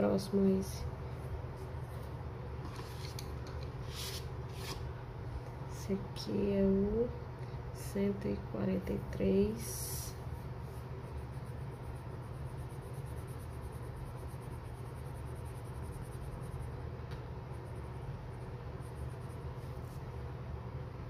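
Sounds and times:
constant low hum: 0.0 - 21.0
pencil scratching on paper: 10.7 - 16.8, 17.5 - 20.0.

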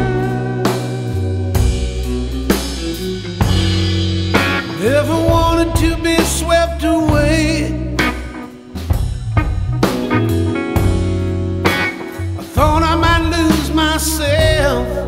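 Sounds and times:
rock music with drums and guitar: 0.0 - 15.0.

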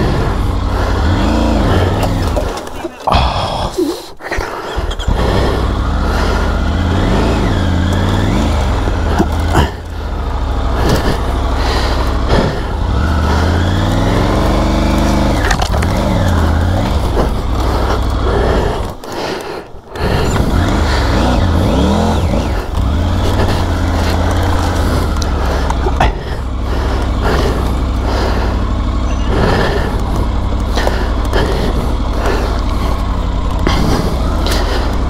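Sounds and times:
motorcycle engine revving: 0.0 - 3.6, 4.6 - 35.0.

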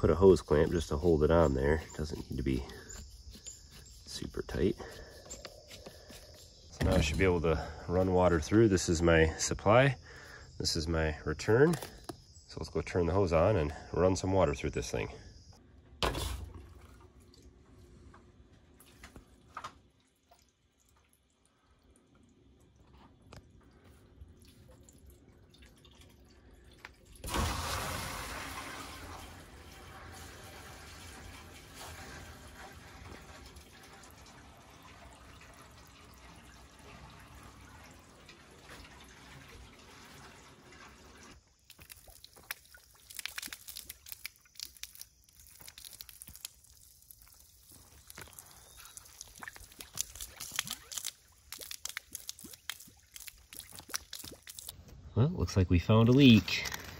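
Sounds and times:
water rushing through pipes: 18.7 - 54.8
water splattering onto concrete: 41.6 - 54.8.

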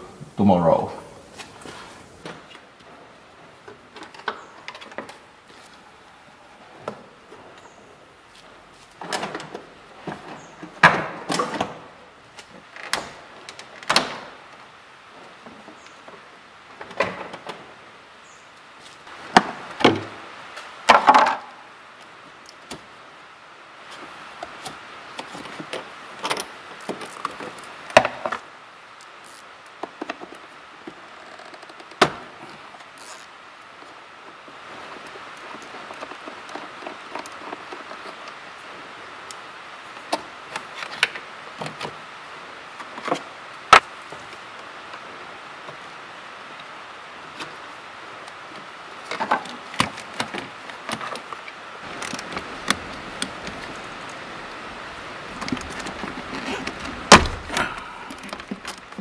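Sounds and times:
car parts and tools clunking: 55.4 - 59.0.

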